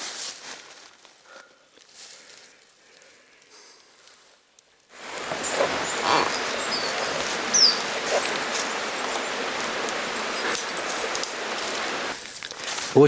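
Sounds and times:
steady rustling: 0:05.0 - 0:13.0.

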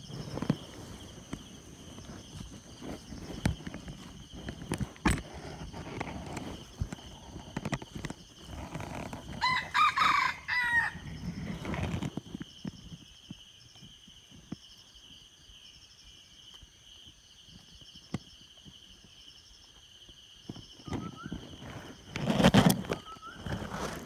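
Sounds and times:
rooster crowing: 0:09.3 - 0:11.2.

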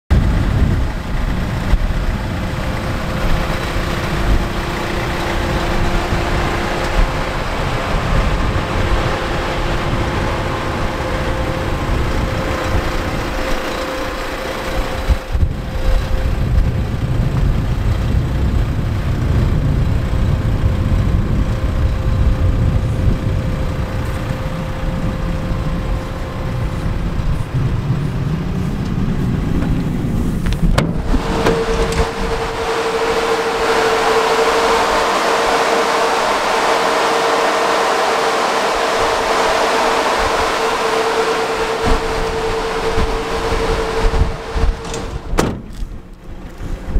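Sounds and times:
diesel van engine idling: 0:00.1 - 0:46.9
low rumble: 0:00.1 - 0:46.9.

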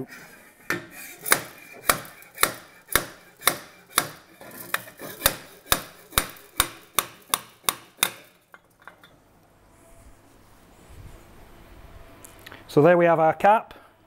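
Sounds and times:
sharp metal knocks: 0:00.7 - 0:09.1.

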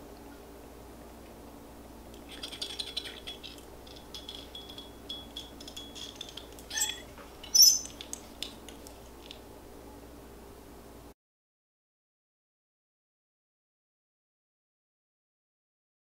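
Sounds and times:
hair rustling in curling iron: 0:02.2 - 0:09.4.

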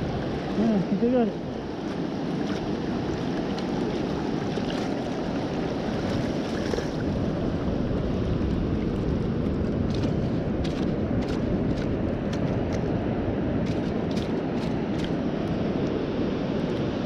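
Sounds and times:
faint water splashes: 0:00.0 - 0:17.0
shallow surf washing around legs: 0:00.0 - 0:17.0.

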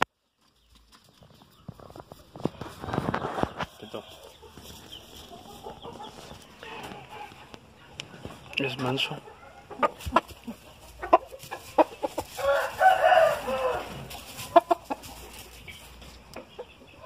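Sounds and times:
rooster crowing: 0:12.2 - 0:14.2.

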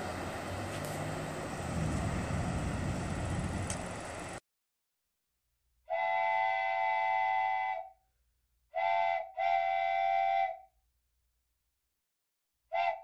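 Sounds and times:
train air horn blasts: 0:05.9 - 0:08.0, 0:08.8 - 0:10.6.

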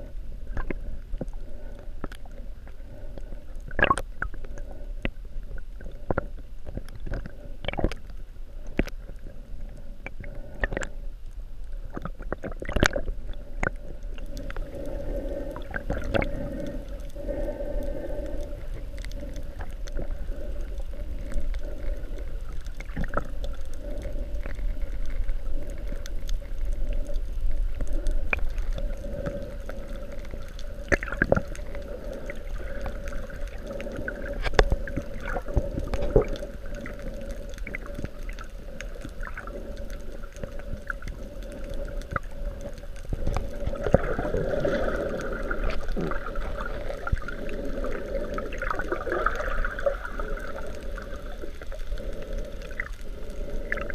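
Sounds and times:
water sloshing underwater: 0:00.0 - 0:53.9
clicks and pops: 0:03.7 - 0:04.4, 0:06.2 - 0:08.0.

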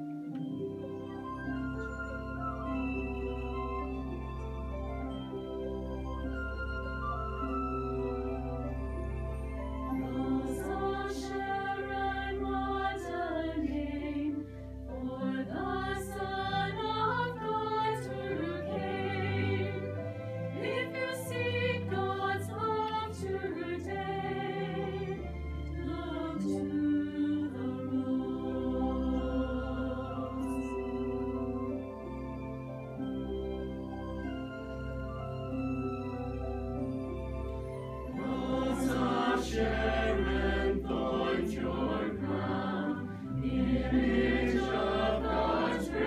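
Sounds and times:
choir singing: 0:09.8 - 0:31.4, 0:38.0 - 0:46.0.

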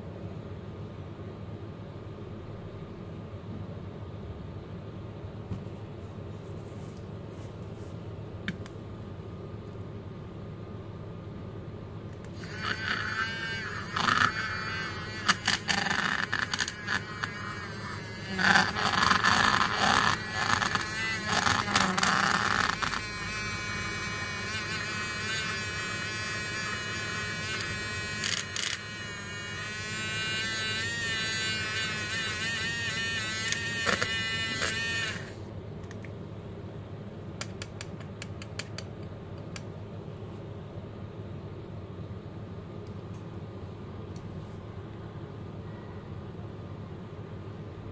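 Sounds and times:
paint mixer motor buzzing: 0:12.3 - 0:35.4.

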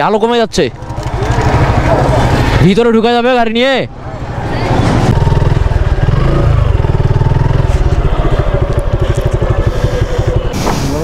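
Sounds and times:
motorcycle engine at low revs: 0:05.1 - 0:11.0.

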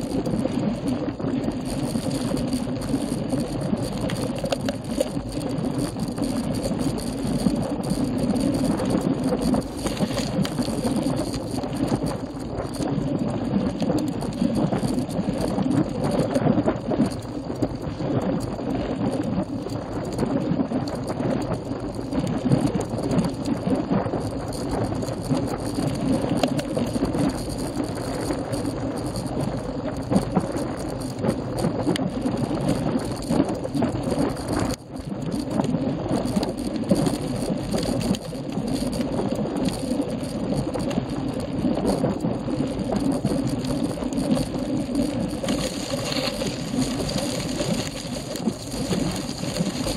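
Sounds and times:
tyre noise on rough asphalt: 0:00.0 - 0:35.6, 0:36.3 - 0:49.9
bike and mount rattling: 0:01.5 - 0:12.9, 0:43.0 - 0:49.9.

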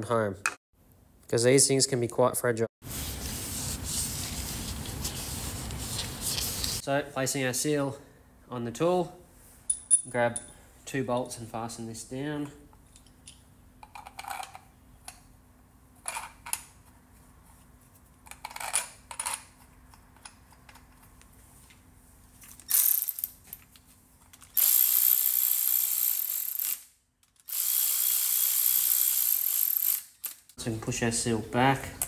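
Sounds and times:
cordless electric ratchet running: 0:24.5 - 0:30.3.

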